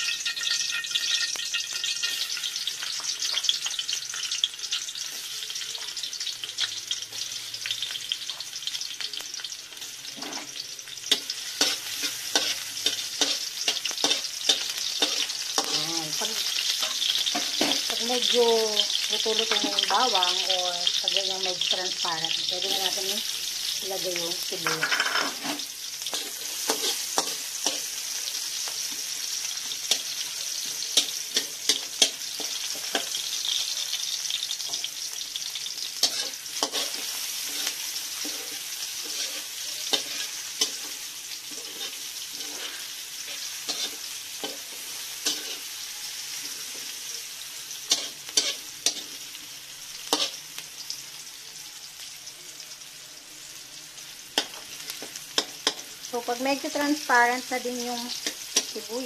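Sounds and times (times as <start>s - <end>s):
garlic and onion sizzling in oil: 0.0s - 59.0s
spatula scraping and tapping pan: 11.1s - 15.9s, 24.6s - 27.9s, 36.0s - 44.6s.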